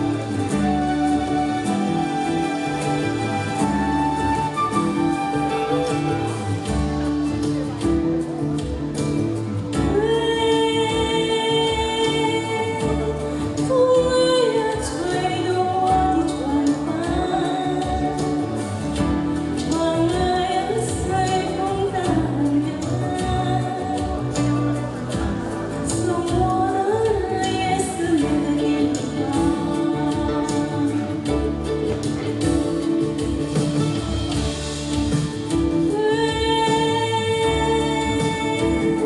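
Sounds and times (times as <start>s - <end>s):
instrumental accompaniment: 0.0s - 39.0s
woman singing: 9.6s - 34.5s, 35.1s - 39.0s.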